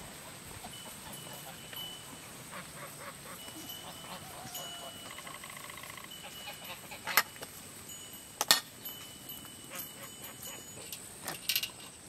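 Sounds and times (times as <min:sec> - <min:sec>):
geese honking: 0:00.0 - 0:07.4
faint high chirping: 0:00.8 - 0:11.0.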